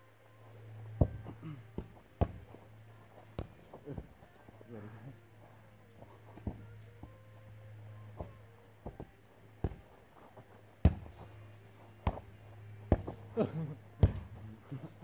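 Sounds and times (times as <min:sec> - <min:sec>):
steady low hum: 0:00.0 - 0:15.0
ball thumps: 0:00.9 - 0:02.6, 0:03.3 - 0:04.3, 0:06.3 - 0:07.2, 0:08.1 - 0:11.4, 0:12.0 - 0:13.4, 0:14.0 - 0:14.4.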